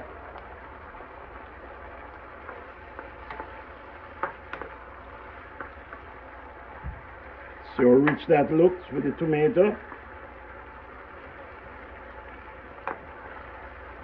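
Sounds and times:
vegetables sizzling in oil: 0.0s - 14.0s.

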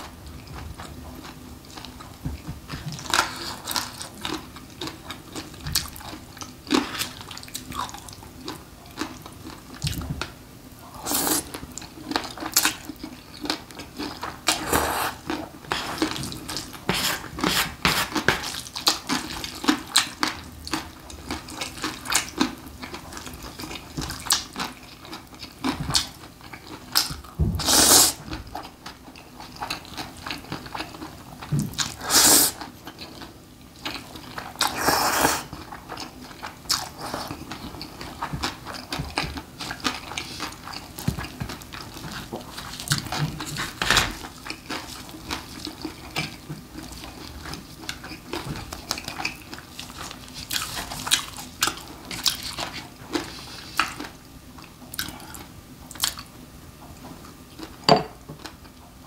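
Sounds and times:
loud noodle slurps: 14.6s - 15.2s, 27.6s - 28.2s, 32.0s - 32.6s, 34.6s - 35.5s
wet chewing and mouth smacks: 33.8s - 56.3s.

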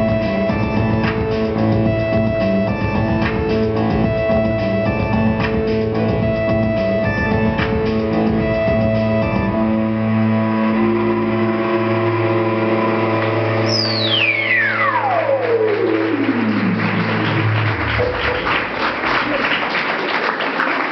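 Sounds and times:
drums: 0.0s - 9.7s
electric bass: 0.0s - 18.8s.

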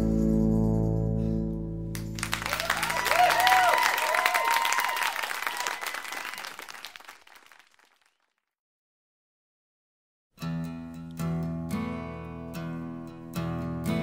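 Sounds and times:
audience applauding: 2.0s - 8.3s.

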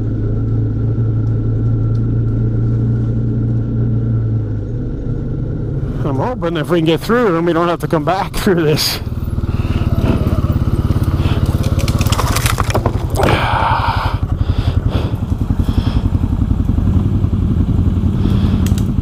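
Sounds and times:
atv engine chugging: 0.0s - 19.0s
branches scraping against vehicle: 9.4s - 13.2s.

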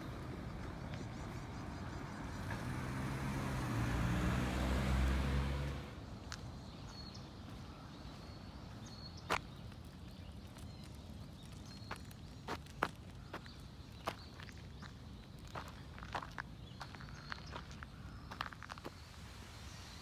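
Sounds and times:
vehicle engine: 0.0s - 6.2s
hooves tapping on gravel: 8.7s - 19.1s.

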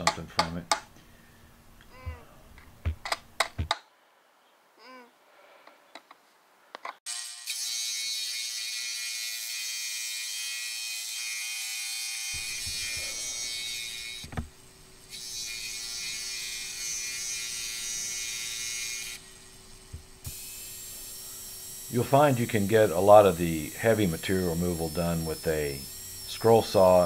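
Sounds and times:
scroll saw cutting wood: 7.1s - 14.5s, 15.1s - 27.0s.

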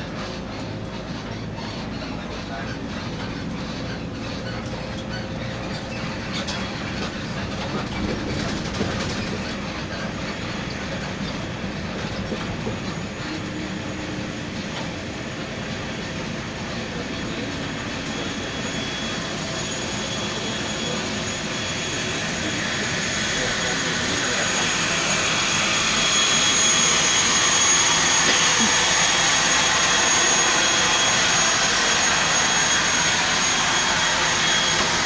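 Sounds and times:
rattling inside bus: 0.0s - 21.6s
bus engine and road rumble: 0.0s - 35.0s
high whine: 11.1s - 35.0s.

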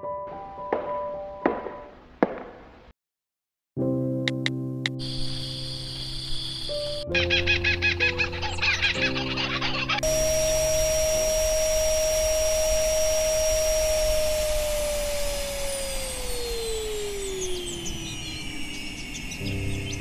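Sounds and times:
appliance motor whining: 5.0s - 7.0s, 8.8s - 20.0s.

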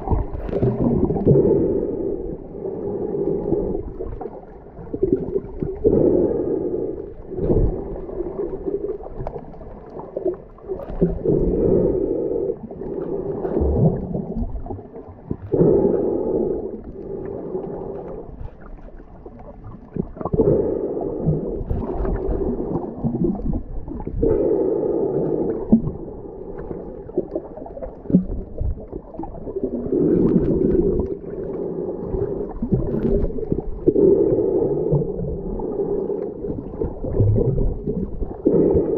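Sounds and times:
water sloshing underwater: 0.0s - 38.9s.

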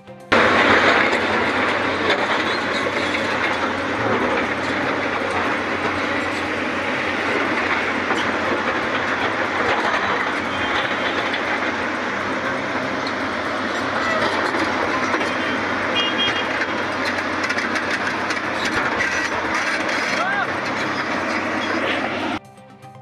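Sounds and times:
excavator diesel engines running: 0.0s - 23.0s
machinery rattling and clanking: 0.1s - 22.4s.

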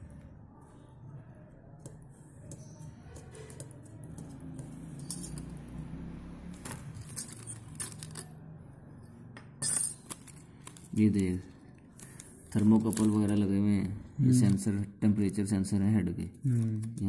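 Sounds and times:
small metal parts clicking: 3.2s - 5.6s, 6.6s - 8.4s.

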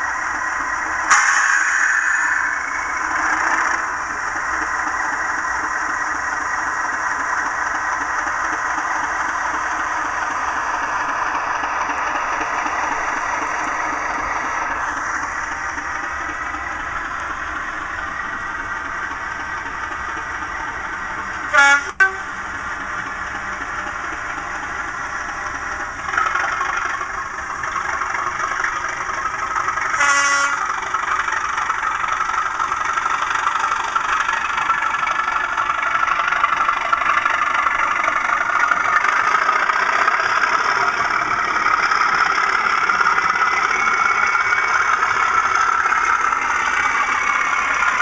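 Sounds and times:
model diesel engine sound: 0.0s - 48.0s
horn blast: 1.1s - 2.5s, 21.5s - 22.3s, 30.0s - 30.6s.

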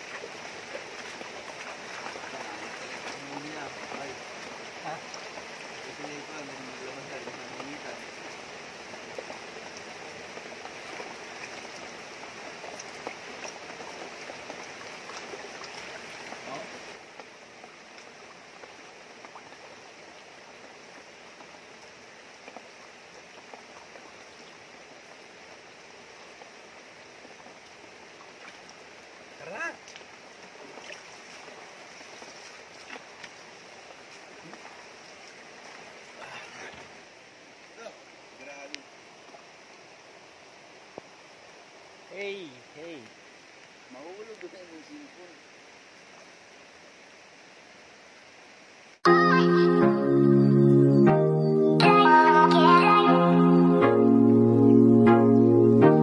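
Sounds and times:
small splashes and drips: 0.0s - 37.8s
river rushing over rocks: 0.0s - 44.0s.

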